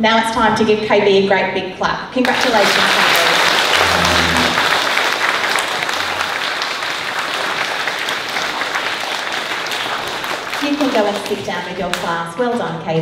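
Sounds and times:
audience applause: 0:02.2 - 0:12.0.

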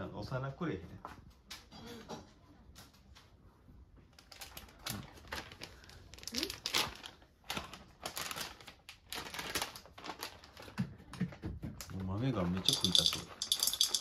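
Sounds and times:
plastic bag crinkling: 0:04.1 - 0:10.8, 0:12.5 - 0:14.0.

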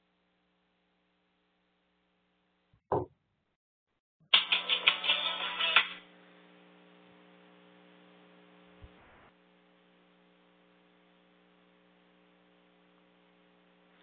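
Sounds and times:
faint electrical hum: 0:04.8 - 0:14.0.

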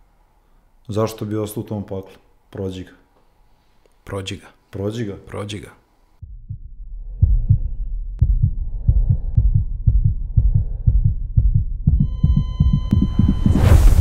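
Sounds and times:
heartbeat thumps: 0:06.2 - 0:14.0.

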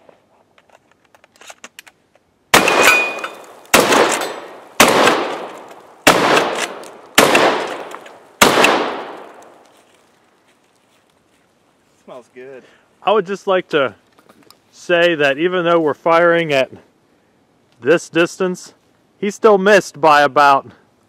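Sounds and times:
shotgun firing: 0:02.5 - 0:09.5
gunshot echo: 0:02.5 - 0:09.6.

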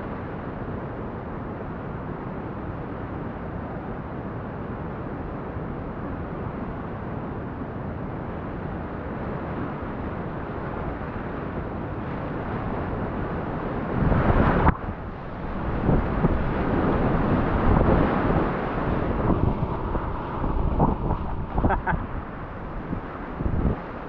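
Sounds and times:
waves splashing: 0:11.7 - 0:24.0.

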